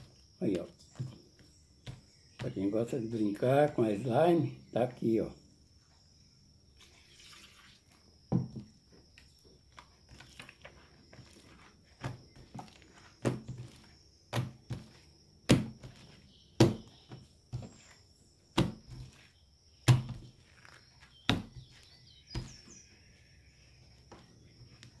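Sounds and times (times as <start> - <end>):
slime kneaded by hand thuds: 9.7 - 22.8.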